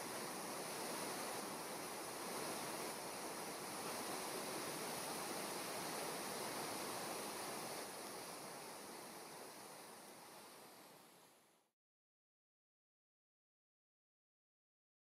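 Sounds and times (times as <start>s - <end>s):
waterfall water rushing: 0.0s - 11.5s.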